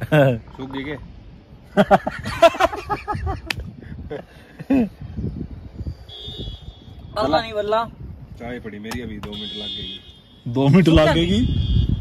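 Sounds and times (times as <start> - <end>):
men laughing and chattering: 0.0 - 5.3.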